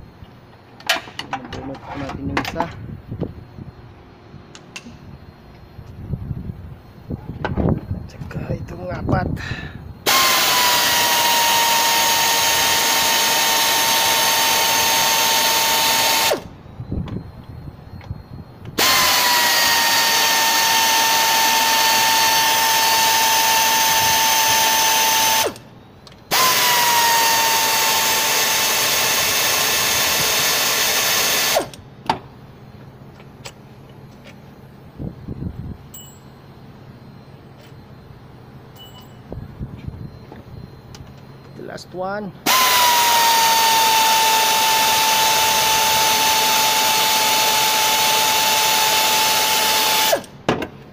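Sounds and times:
power tool whining: 10.0s - 31.8s, 42.4s - 50.4s.

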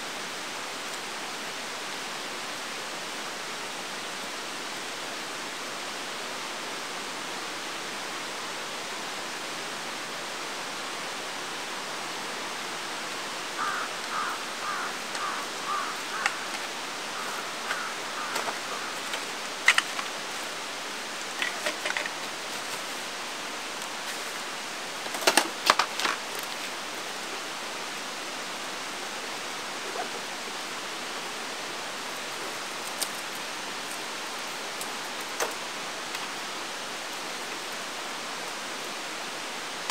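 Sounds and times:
mountain stream flowing: 0.0s - 39.9s
camping gear knocking and clattering: 21.3s - 22.9s, 25.0s - 26.2s.

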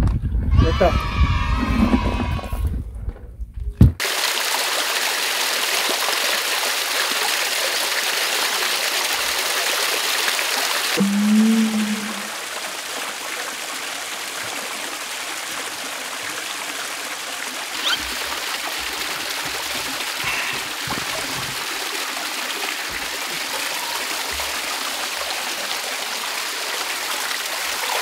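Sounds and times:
water splashing into a pond: 4.0s - 28.0s.

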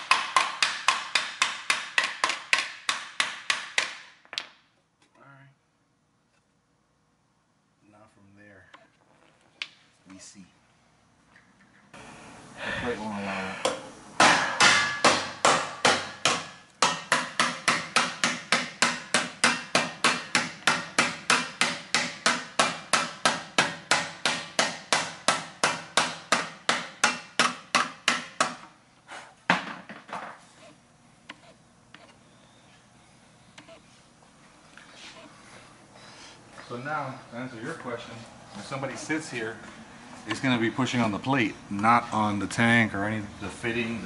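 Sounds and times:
hammer striking metal plate: 0.0s - 4.2s, 14.2s - 28.6s.

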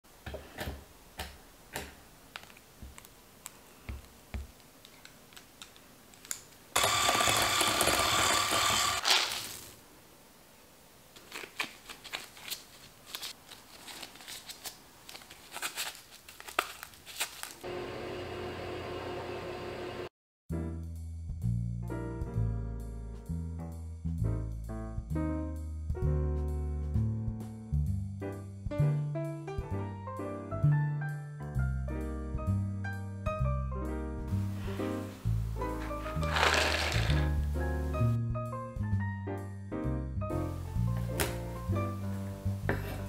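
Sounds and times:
motor whir: 6.8s - 9.3s.

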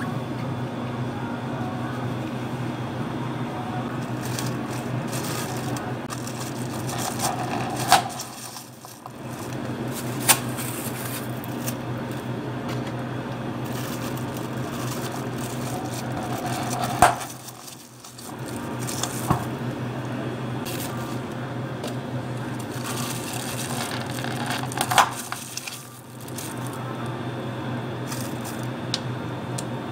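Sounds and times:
steady low hum: 0.0s - 29.9s
plastic film crinkling: 4.0s - 12.3s, 13.6s - 19.8s, 20.6s - 26.9s, 28.1s - 28.7s.

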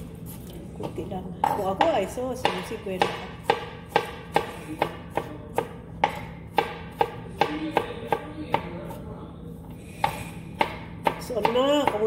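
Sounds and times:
knife chopping on cutting board: 1.4s - 9.0s, 10.0s - 12.0s.

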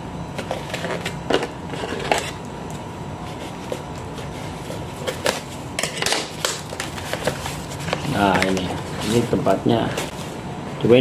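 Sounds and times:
cardboard scraping and rustling: 6.7s - 10.3s.

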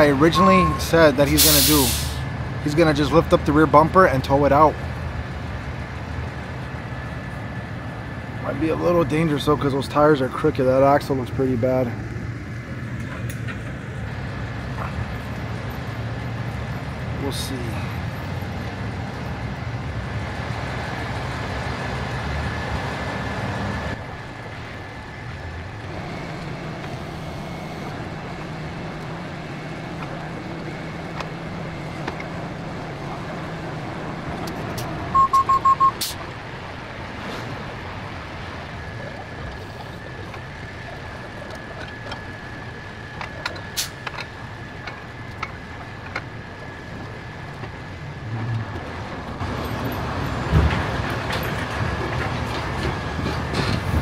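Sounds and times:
truck engine running: 0.0s - 54.0s
short electronic beeps: 0.2s - 1.2s, 26.8s - 27.9s, 35.1s - 36.2s.

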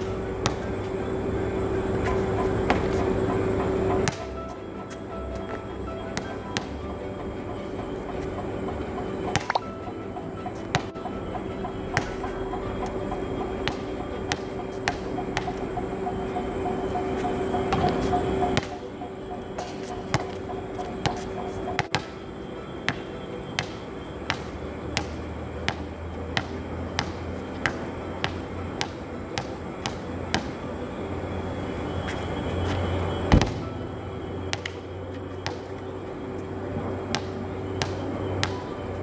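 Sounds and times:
basketball bouncing on hard court: 23.6s - 25.8s.

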